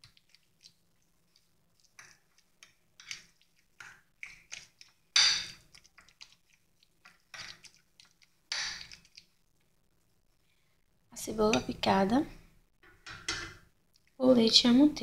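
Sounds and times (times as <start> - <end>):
utensil mashing pumpkin on plate: 0.0 - 9.4.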